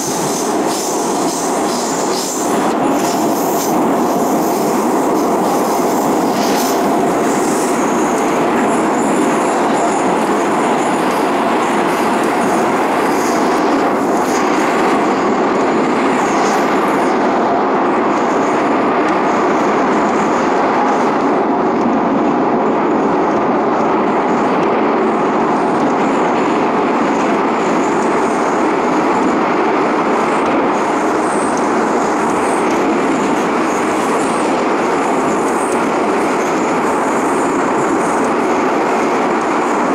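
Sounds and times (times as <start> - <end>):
train wheels on rails: 0.0 - 39.9.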